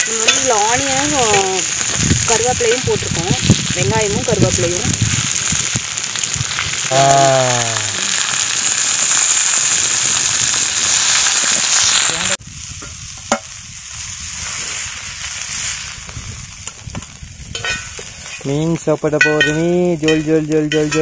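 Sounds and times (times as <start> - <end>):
fish sizzling in oil: 0.0 - 21.0
metal spoon scraping a pan: 17.5 - 21.0.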